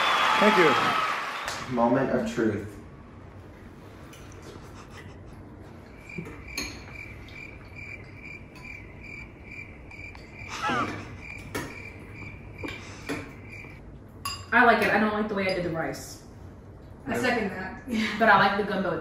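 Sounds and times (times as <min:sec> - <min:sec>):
cricket chirping: 0:05.8 - 0:13.8
spoons clinking against bowls: 0:05.9 - 0:09.0, 0:14.2 - 0:15.7.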